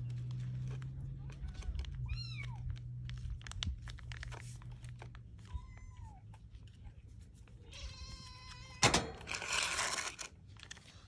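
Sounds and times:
plastic pouch crinkling: 0.0s - 5.5s, 9.2s - 11.0s
kitten meowing: 2.0s - 2.7s.

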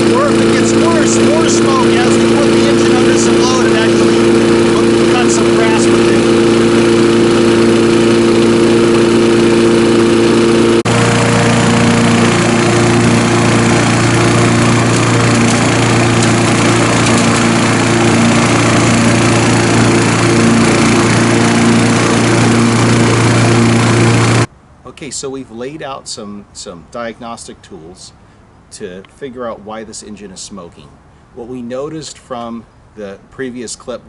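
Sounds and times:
lawn mower engine running: 0.0s - 24.5s.

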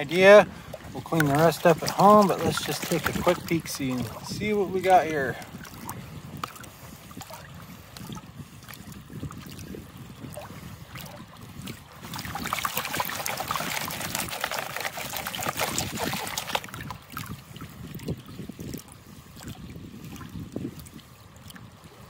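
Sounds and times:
water sloshing in a pan: 0.0s - 17.4s.

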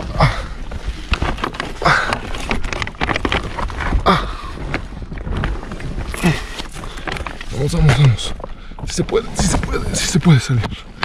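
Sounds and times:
clothing scraping against rock: 0.0s - 11.0s
person grunting with effort: 4.0s - 4.6s.

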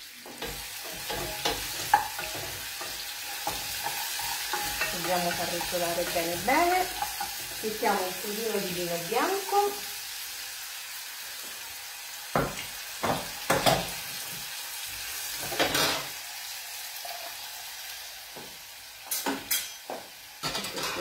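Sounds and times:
vegetables sizzling in hot oil: 0.0s - 21.0s
saucepan clattering on grate: 0.4s - 7.4s
wooden spoon scraping saucepan: 0.5s - 7.6s.

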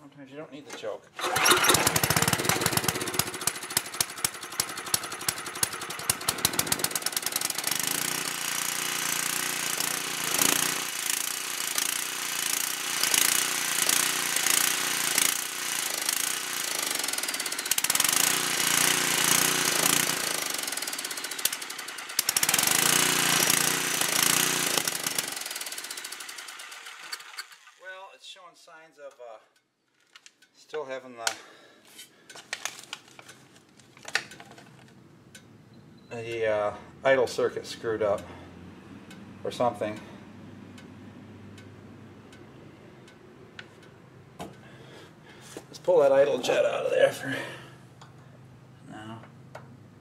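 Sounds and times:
generator engine surging: 1.2s - 11.0s.

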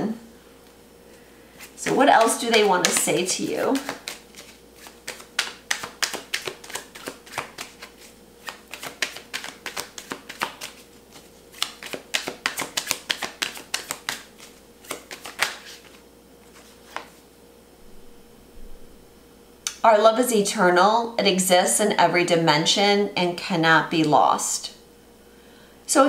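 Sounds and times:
cards being shuffled: 1.6s - 17.2s.

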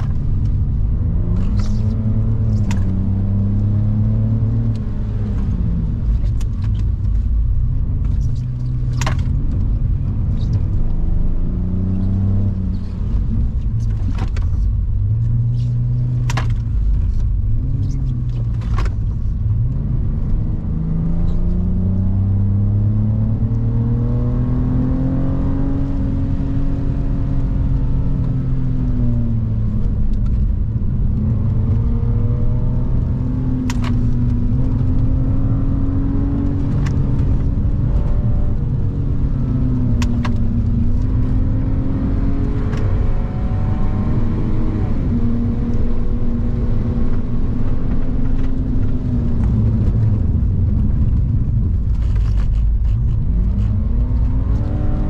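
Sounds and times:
tyres rumbling on wet road: 0.0s - 55.0s
car engine revving high: 31.0s - 50.0s, 53.2s - 55.0s.

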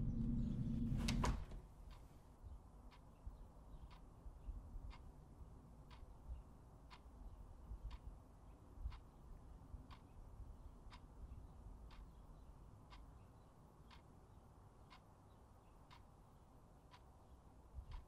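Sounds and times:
clock ticking faintly: 0.0s - 18.0s.

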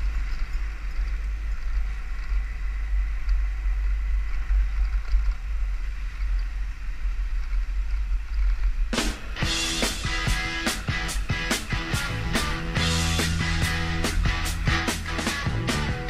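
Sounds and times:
wind rumble on microphone: 0.0s - 9.4s
motorcycle running noise: 0.0s - 16.0s.

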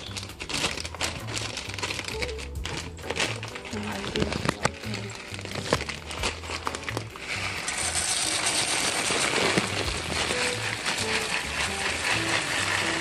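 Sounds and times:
background music with bass line: 0.0s - 13.0s
oil sizzling in hot pan: 5.2s - 13.0s.

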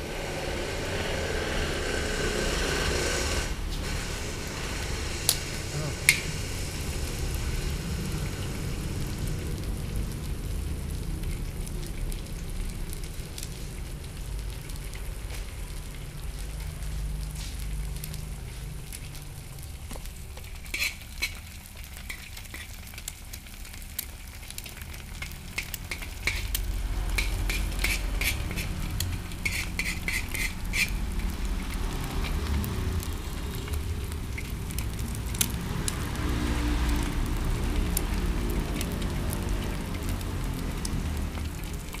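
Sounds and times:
egg and onion sizzling in wok: 0.0s - 42.0s
metal spoon tapping wok: 25.5s - 31.0s.

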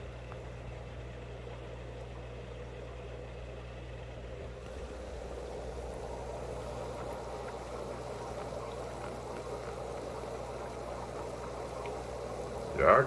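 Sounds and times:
aquarium filter hum: 0.0s - 13.0s
bubbling water hiss: 4.6s - 13.0s.

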